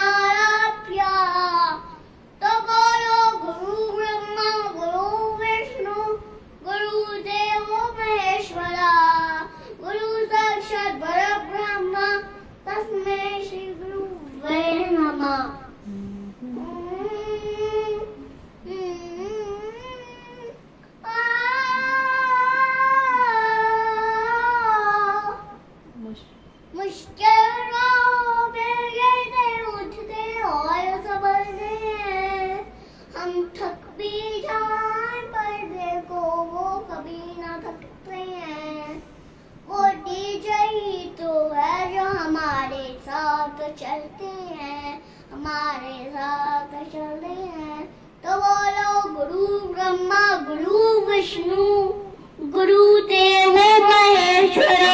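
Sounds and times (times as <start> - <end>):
boy singing: 0.0 - 25.6, 26.7 - 39.0, 39.7 - 54.9
boy singing solo: 39.7 - 54.9.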